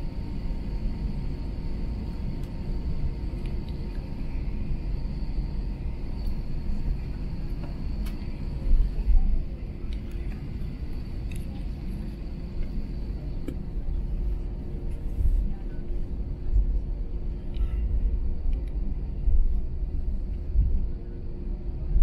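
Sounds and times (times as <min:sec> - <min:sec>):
aircraft cabin rumble: 0:00.0 - 0:22.0
faint steady hum: 0:00.0 - 0:22.0.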